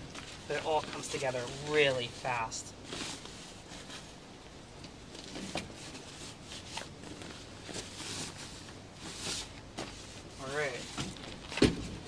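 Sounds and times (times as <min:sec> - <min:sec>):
nylon fabric rustling: 0:00.0 - 0:04.3, 0:05.0 - 0:12.0.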